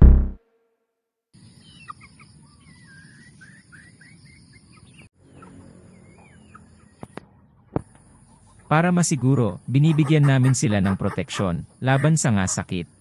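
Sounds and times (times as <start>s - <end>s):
chicks chirping and peeping: 1.7s - 9.0s.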